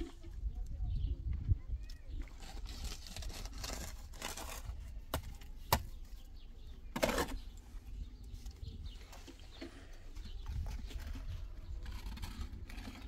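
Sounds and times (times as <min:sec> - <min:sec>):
shovel scraping mortar on concrete: 0:02.2 - 0:05.9, 0:06.9 - 0:07.6, 0:10.9 - 0:13.0.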